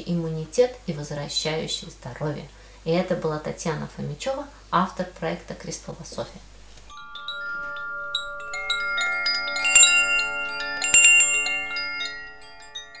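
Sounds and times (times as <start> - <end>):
chimes ringing: 6.9 - 13.0.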